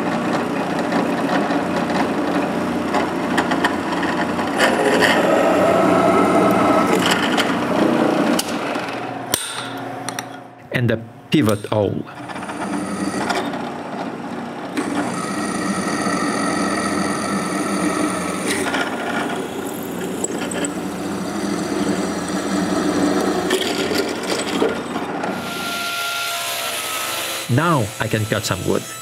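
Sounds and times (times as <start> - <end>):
table saw running: 0.0 - 9.2, 12.1 - 29.0
drill press cutting steel: 11.5 - 29.0.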